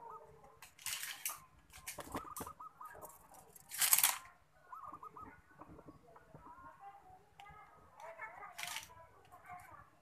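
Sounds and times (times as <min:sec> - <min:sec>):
bird calling: 0:01.9 - 0:03.4, 0:04.6 - 0:06.6.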